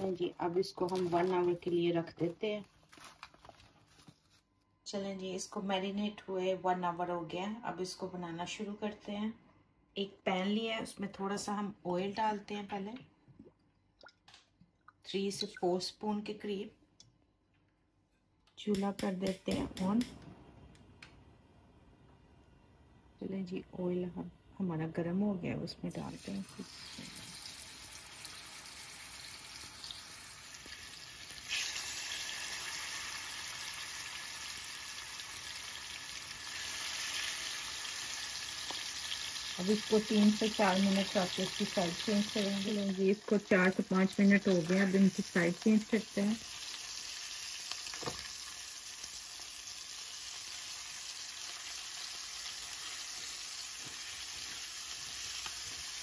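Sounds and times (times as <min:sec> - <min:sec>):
chicken sizzling in oil: 0:26.1 - 0:56.0.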